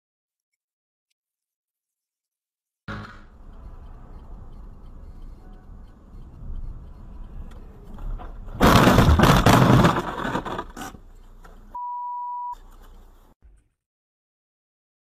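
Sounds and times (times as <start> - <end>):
steady beep: 2.9 - 7.9, 11.8 - 12.6
road noise: 2.9 - 11.8, 12.6 - 13.4
snow and ice hitting car: 8.6 - 11.0.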